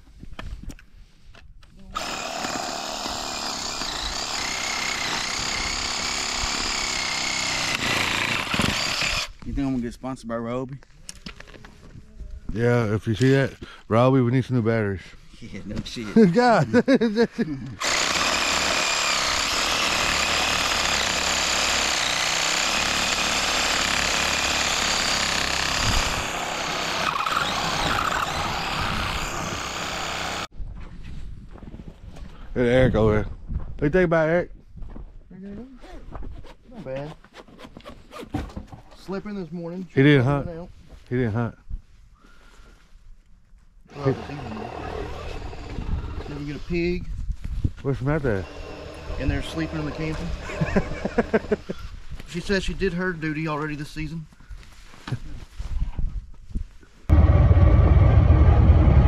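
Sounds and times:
power tool motor whining: 2.0s - 9.4s, 17.8s - 30.5s, 43.9s - 46.8s, 48.2s - 50.8s
rough cutting noise: 2.0s - 9.4s, 17.7s - 30.5s, 43.9s - 47.1s, 47.9s - 53.0s, 57.1s - 59.0s.

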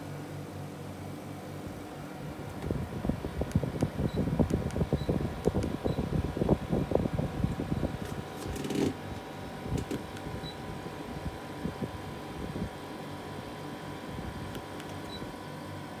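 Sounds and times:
air conditioner fan humming: 0.0s - 16.0s
air buffeting microphone: 2.3s - 12.8s.

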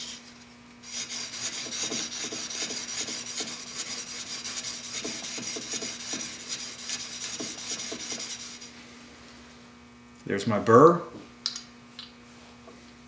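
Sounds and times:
chisel rasping on sharpening stone: 0.9s - 8.6s.

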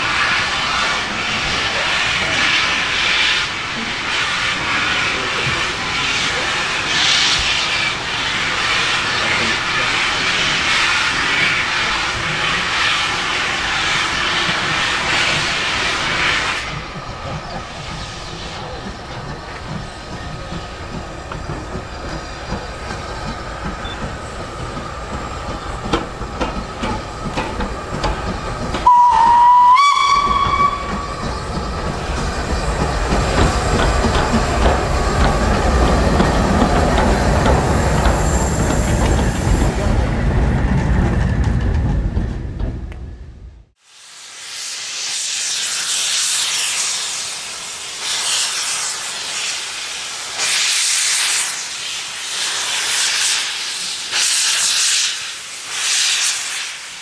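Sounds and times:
steam hissing: 0.0s - 40.5s, 43.8s - 57.0s
locomotive rumble: 0.0s - 43.8s
steam whistle blast: 28.8s - 31.2s.

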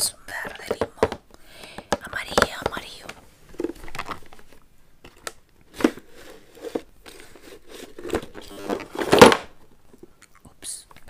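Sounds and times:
rustling in plastic basket: 3.1s - 9.6s.

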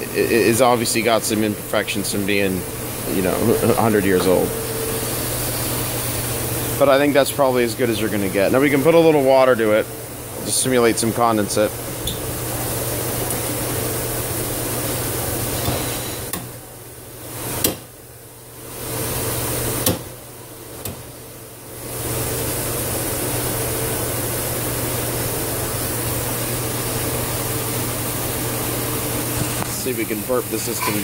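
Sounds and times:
steam hissing through steam trap: 15.4s - 16.3s.

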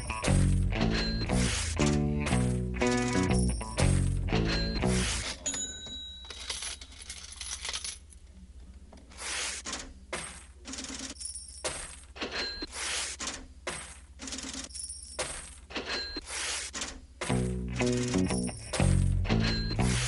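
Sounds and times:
metallic clinking and crashing: 0.0s - 1.7s, 2.3s - 8.0s.

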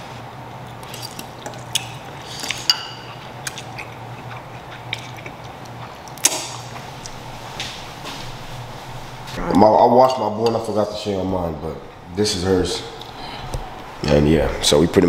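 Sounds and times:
low hum: 0.0s - 15.0s
fork clinking against bowl: 2.5s - 3.2s.

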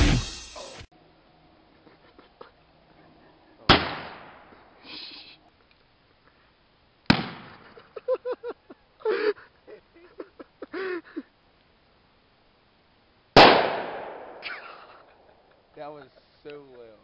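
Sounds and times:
bottle bombs bursting with bangs: 3.7s - 4.4s, 7.1s - 7.6s, 13.4s - 14.6s.

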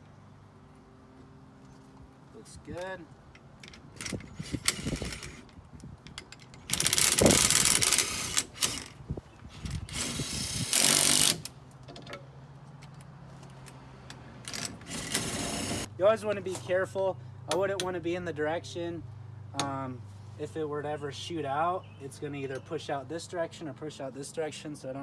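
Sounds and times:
cordless drill running: 9.9s - 11.4s.

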